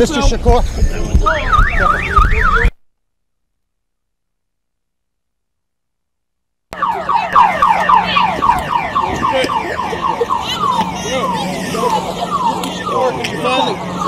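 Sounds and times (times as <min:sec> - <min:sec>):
car alarm chirps: 0:01.3 - 0:02.7, 0:06.8 - 0:14.0.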